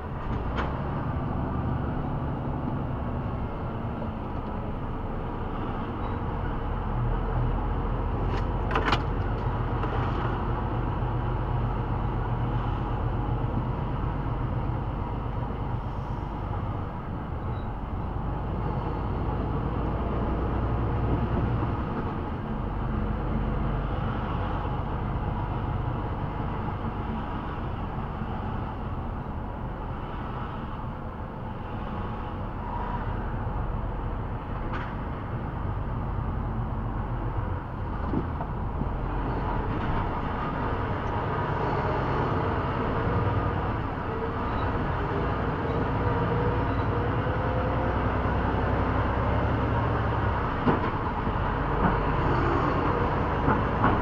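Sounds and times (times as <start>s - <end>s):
vehicle engine and road rumble: 0.0s - 54.0s.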